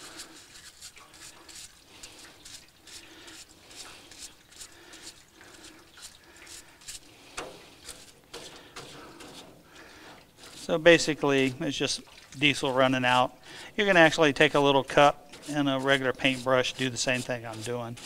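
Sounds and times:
brush scrubbing plastic: 0:00.0 - 0:18.0
liquid trickling: 0:00.0 - 0:18.0.

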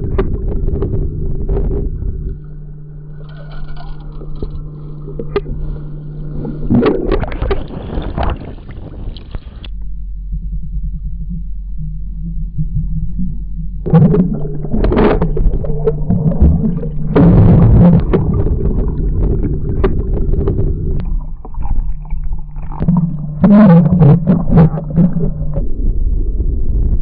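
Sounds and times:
low mechanical hum: 0:00.0 - 0:27.0
rattling clattering noise: 0:03.1 - 0:05.6.

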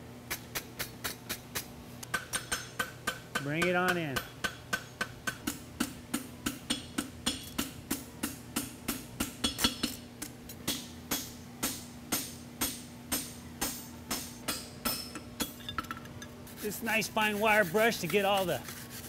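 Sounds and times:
hammer striking metal: 0:02.1 - 0:09.9, 0:10.6 - 0:16.0.

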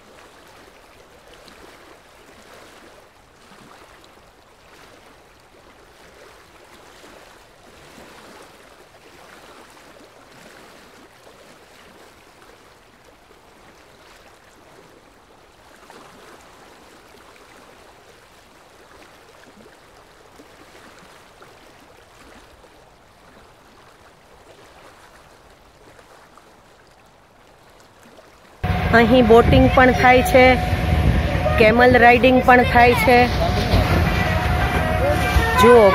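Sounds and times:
soft surf on sandy beach: 0:28.6 - 0:35.9.

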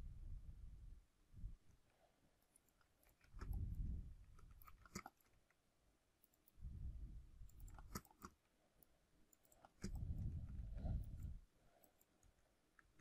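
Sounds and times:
low muffled rumbles: 0:09.9 - 0:11.4.

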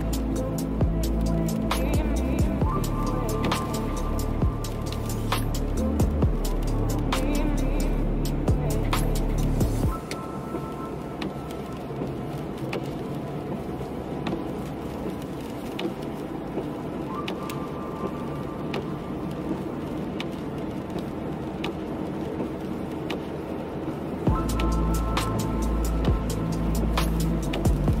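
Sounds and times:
raindrop ticks: 0:00.0 - 0:28.0
tyres hissing on wet road: 0:00.0 - 0:28.0.

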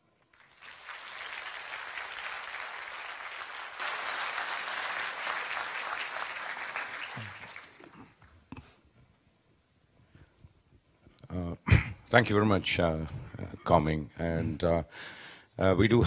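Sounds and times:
audience applauding: 0:00.3 - 0:08.3.

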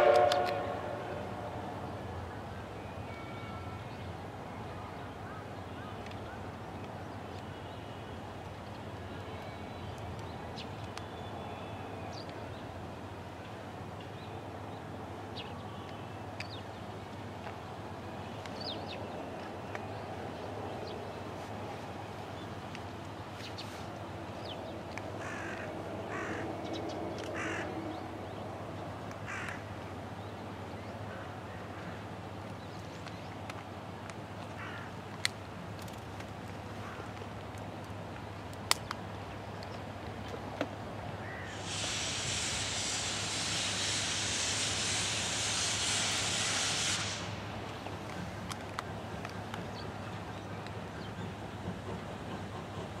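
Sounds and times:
steam locomotive hissing steam: 0:00.0 - 0:01.8, 0:41.2 - 0:53.0
steady background noise: 0:00.0 - 0:53.0
crow cawing: 0:25.2 - 0:26.4, 0:27.4 - 0:27.7, 0:29.3 - 0:29.6.

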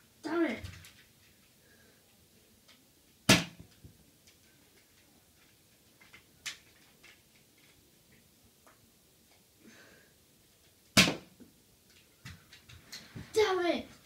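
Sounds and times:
foam-dart blaster snap: 0:03.3 - 0:03.7, 0:11.0 - 0:11.3.

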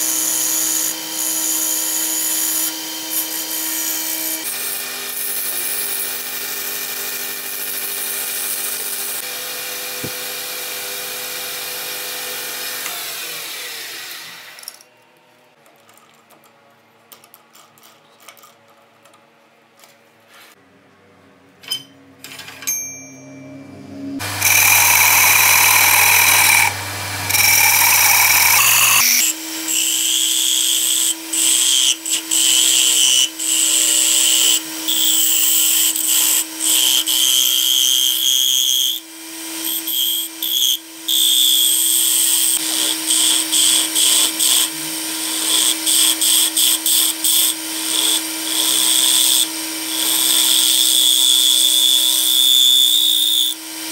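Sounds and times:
wood lathe with gouge cutting: 0:00.0 - 0:14.7, 0:24.2 - 0:53.9
loud steady machine noise: 0:24.2 - 0:29.0.

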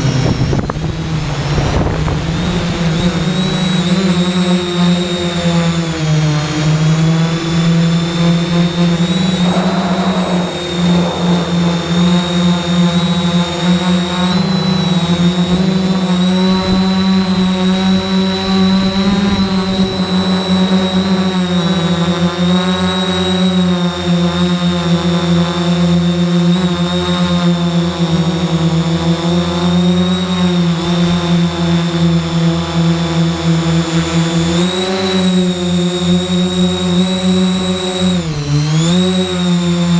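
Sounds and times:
drone motors buzzing: 0:09.0 - 0:13.2.

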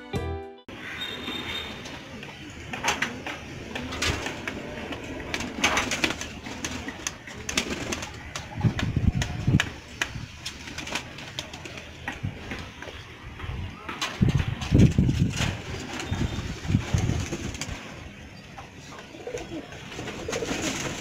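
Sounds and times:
pigeons cooing: 0:01.7 - 0:09.6, 0:18.9 - 0:21.0
wings flapping: 0:02.6 - 0:12.7, 0:13.8 - 0:18.2, 0:19.2 - 0:21.0.

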